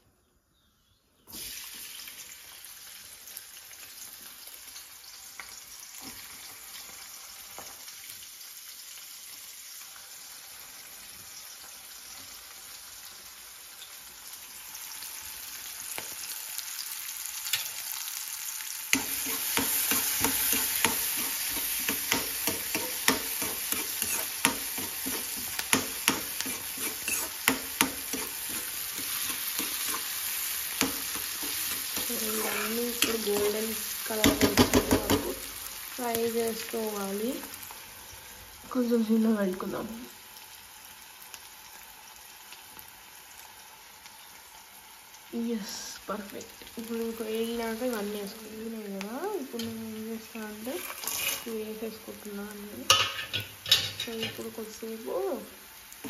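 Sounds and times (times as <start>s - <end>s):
onions sizzling in hot oil: 1.2s - 56.0s
spatula scraping metal pan: 19.0s - 33.6s, 50.5s - 51.6s.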